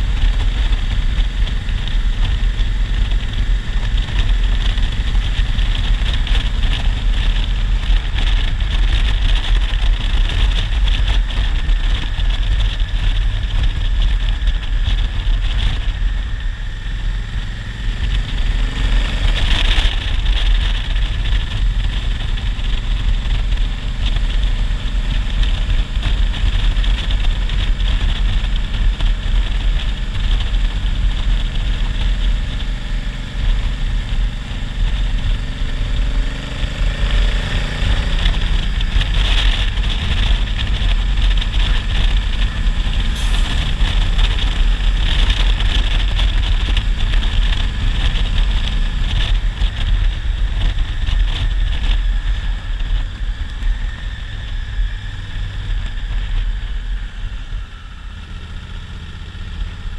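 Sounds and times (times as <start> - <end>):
motorcycle engine running: 0.0 - 59.9
wind rush on microphone: 0.0 - 59.9.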